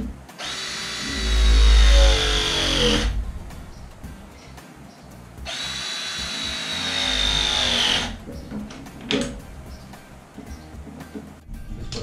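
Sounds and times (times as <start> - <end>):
power tool motor whining: 0.4 - 3.2, 5.5 - 8.2.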